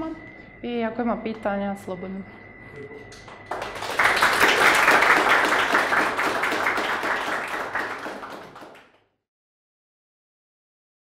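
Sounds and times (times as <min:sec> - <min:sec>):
audience applauding: 0:03.1 - 0:09.0.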